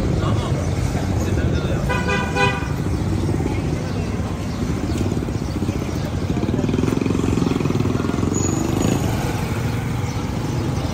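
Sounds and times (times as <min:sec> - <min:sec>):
traffic hum: 0:00.0 - 0:10.9
vehicle engine running close: 0:02.5 - 0:10.9.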